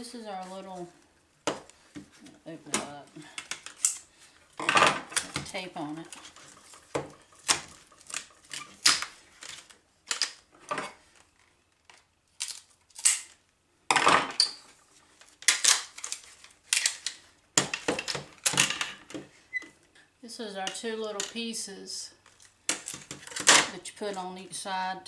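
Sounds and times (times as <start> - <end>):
plastic panels clicking and rattling: 6.1 - 10.9.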